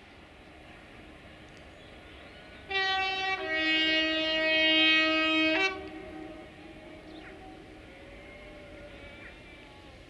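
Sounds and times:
locomotive two-tone horn: 2.7 - 7.9.

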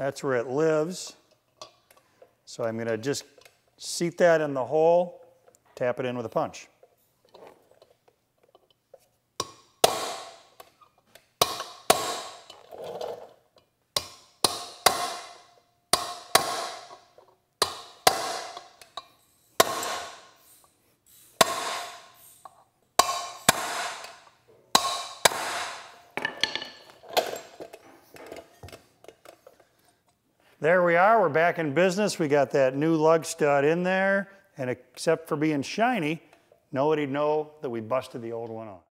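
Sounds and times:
hammer striking steel punch: 9.4 - 10.5, 11.4 - 12.5, 14.0 - 17.0, 17.6 - 18.7, 19.6 - 20.3, 21.4 - 22.1, 23.0 - 24.2, 24.8 - 26.8.

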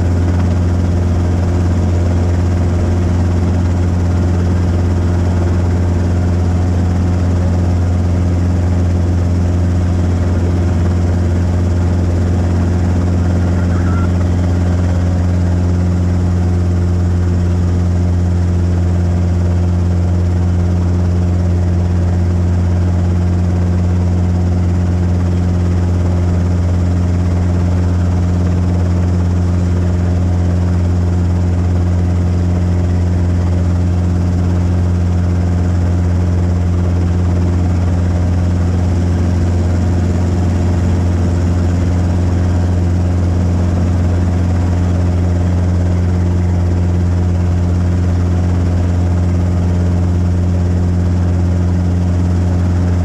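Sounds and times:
helicopter rotor drone: 0.0 - 53.0.

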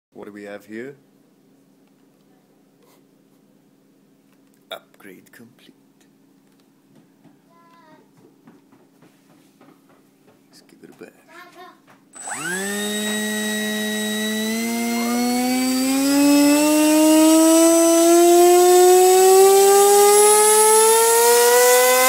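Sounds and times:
electric motor propeller whine: 12.2 - 22.0.

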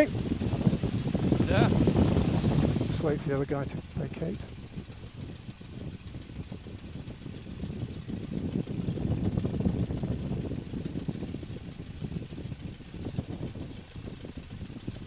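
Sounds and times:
propeller plane engine running: 0.0 - 15.0.

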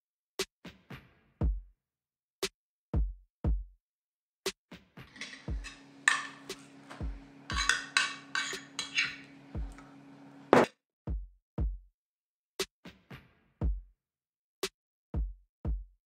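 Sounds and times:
low hum with hiss: 5.2 - 10.6.

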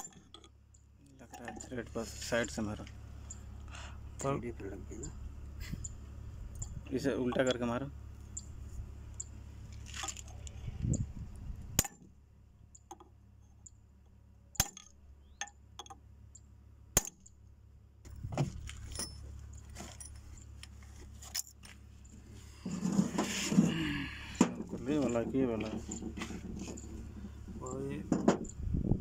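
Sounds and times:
light metallic clinks: 18.7 - 20.6.

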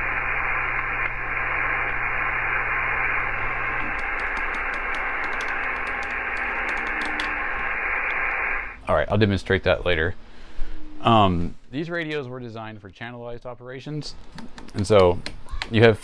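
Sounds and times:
radio receiver hiss: 0.0 - 9.0
low hum: 0.0 - 11.8.

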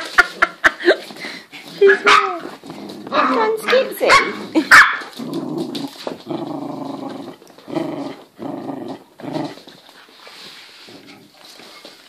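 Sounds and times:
puppy growling: 1.1 - 9.8.

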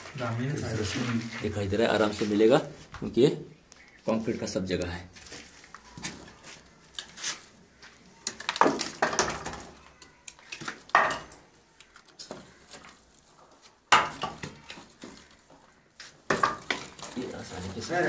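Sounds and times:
wooden planks knocking and clattering: 8.3 - 13.0, 13.9 - 18.0.

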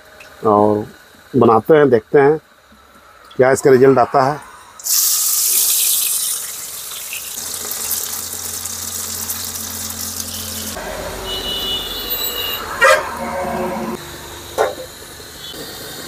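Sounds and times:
banana pieces sizzling in oil: 4.8 - 12.5
low hum: 8.3 - 14.5.

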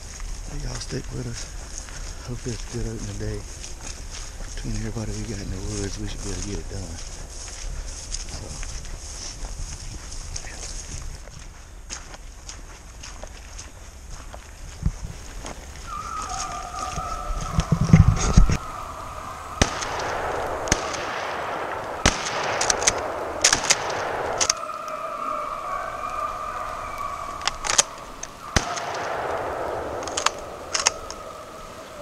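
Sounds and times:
brush rustling against microphone: 15.0 - 20.8
hounds baying: 15.1 - 32.0.

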